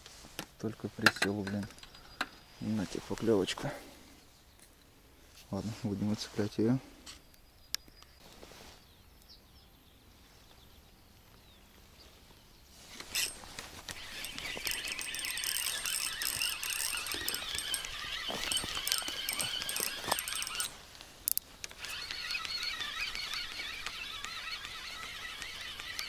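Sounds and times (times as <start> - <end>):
fishing reel whirring and clicking: 13.0 - 26.0
sharp reel clicks: 13.0 - 26.0.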